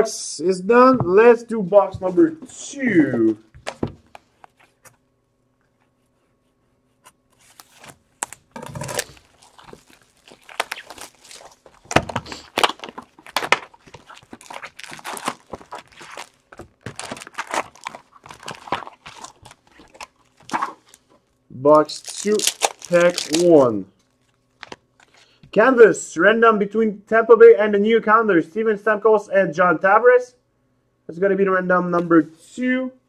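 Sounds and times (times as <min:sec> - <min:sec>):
plastic wrap crinkling and tearing: 0:07.4 - 0:25.1.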